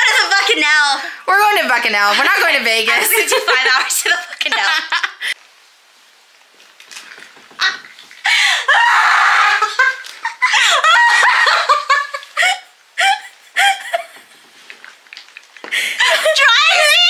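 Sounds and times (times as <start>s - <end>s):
woman laughing: 3.1s - 5.4s, 8.3s - 14.3s, 15.8s - 17.0s.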